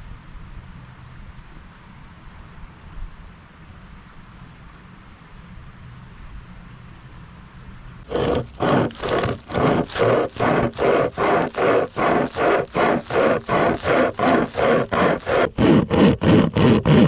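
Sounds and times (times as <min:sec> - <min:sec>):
hand saw rasping through log: 0:08.1 - 0:17.0.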